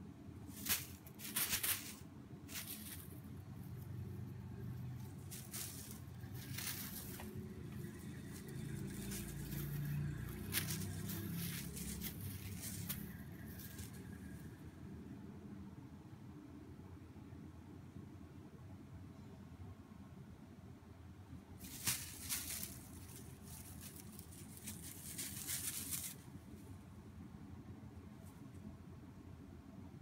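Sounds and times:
low room rumble: 0.0 - 30.0.

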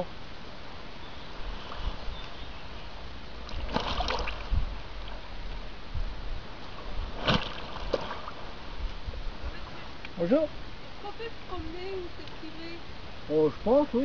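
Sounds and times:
water sloshing and splashing: 3.4 - 5.6, 6.6 - 9.8.

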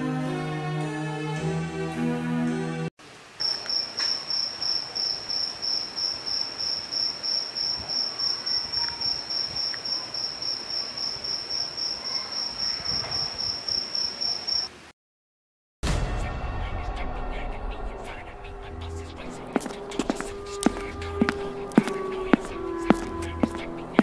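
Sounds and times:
cricket chirping: 3.4 - 14.8.

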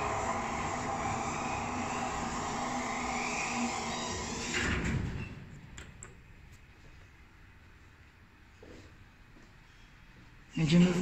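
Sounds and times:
lift running hum: 0.0 - 5.8.

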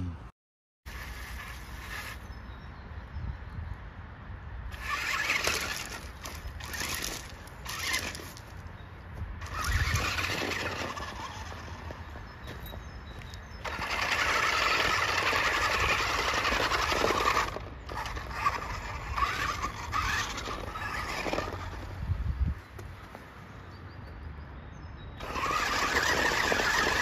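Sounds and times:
toy car electric motors whirring: 0.9 - 2.3, 4.7 - 8.6, 9.4 - 12.2, 13.6 - 22.2, 25.2 - 27.0.

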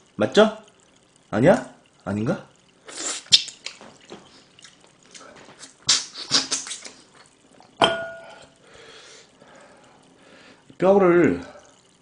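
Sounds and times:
lips sucking and smacking meat: 2.8 - 7.7.

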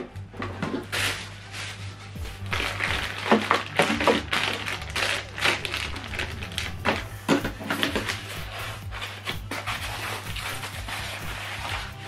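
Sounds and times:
plastic bags crinkling: 0.9 - 7.2.

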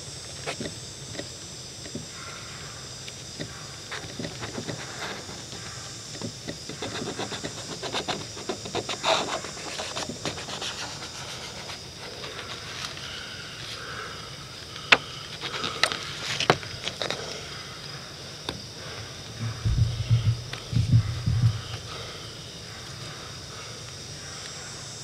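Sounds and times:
razor scraper scratching: 6.7 - 12.7.

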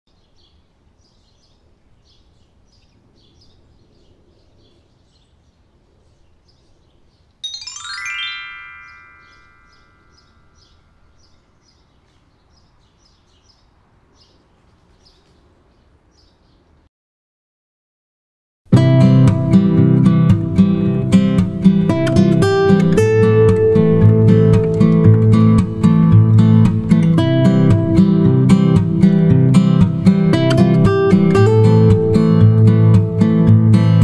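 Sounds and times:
low background hiss: 0.1 - 16.8
rising bell-like chime glissando: 7.4 - 11.2
faint bird chirps: 8.8 - 16.7.

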